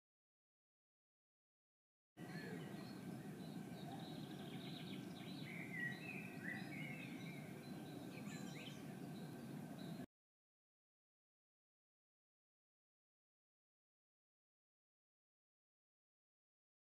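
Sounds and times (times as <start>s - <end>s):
birds chirping: 2.2s - 10.1s
low outdoor rumble: 2.2s - 10.1s.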